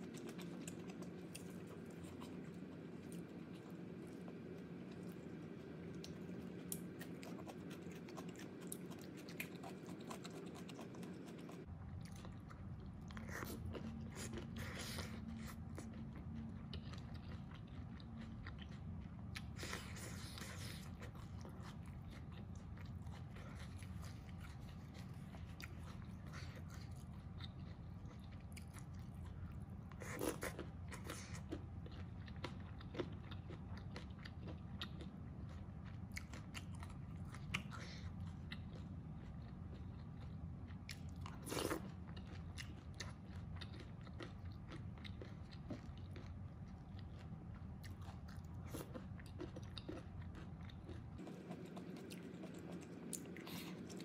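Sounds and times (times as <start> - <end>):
person chewing food: 0.0 - 54.0
steady low hum: 0.0 - 54.0.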